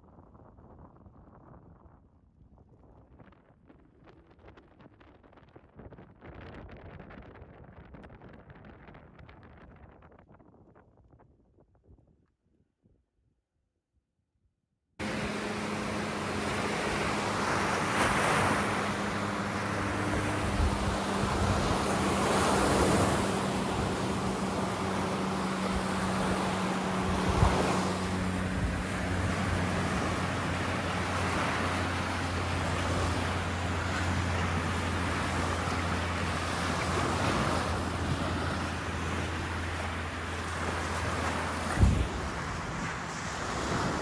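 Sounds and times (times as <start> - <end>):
ocean surf washing ashore: 15.0 - 44.0
steady low hum: 15.0 - 44.0.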